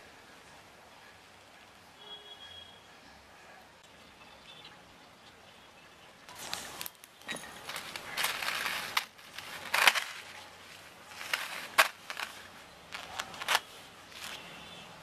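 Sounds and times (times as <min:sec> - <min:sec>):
beads clicking: 0:06.3 - 0:14.4
paper crinkling rustles: 0:06.3 - 0:14.5.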